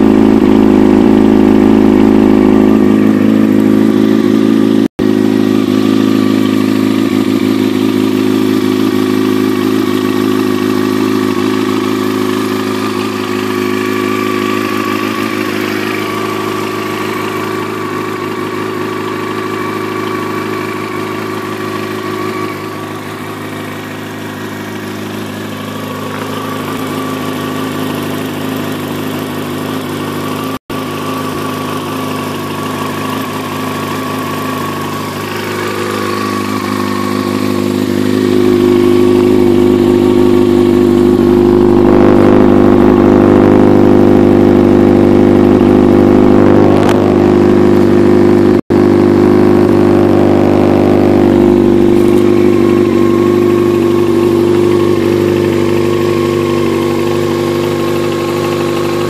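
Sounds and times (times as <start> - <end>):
motorcycle engine idling: 0.0 - 59.0.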